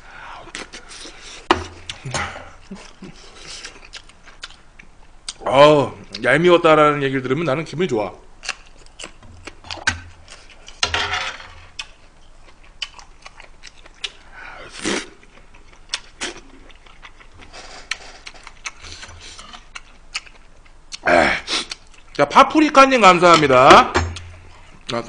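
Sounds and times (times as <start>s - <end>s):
chewing mouth sounds: 2.7s - 5.4s, 11.8s - 21.0s.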